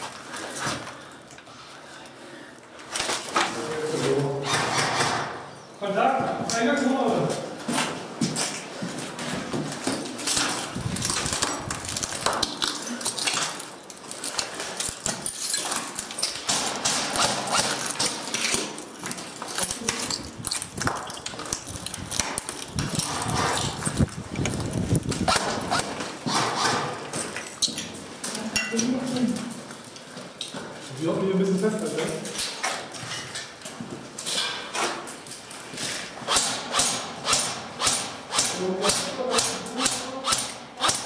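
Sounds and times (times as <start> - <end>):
footsteps on hard floor: 7.6 - 11.2.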